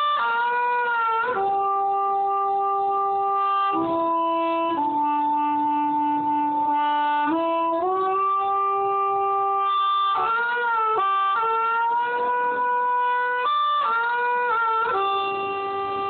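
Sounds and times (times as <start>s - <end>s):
harmonica playing slow melody: 0.0s - 16.0s.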